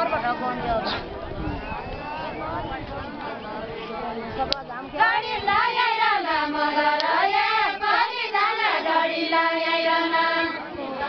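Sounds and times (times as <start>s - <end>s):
women singing folk song: 2.9s - 11.0s.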